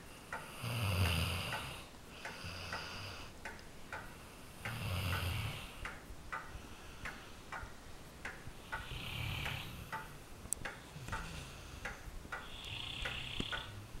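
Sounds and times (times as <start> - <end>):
faint ticking: 0.0 - 14.0.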